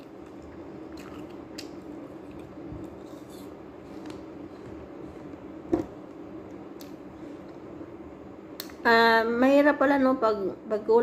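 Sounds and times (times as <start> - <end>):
person chewing crunchy food: 0.0 - 5.5
steady low hum: 0.0 - 11.0.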